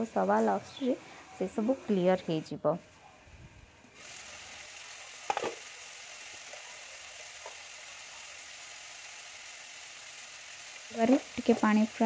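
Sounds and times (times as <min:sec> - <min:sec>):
vegetables sizzling in a pan: 0:03.9 - 0:12.0.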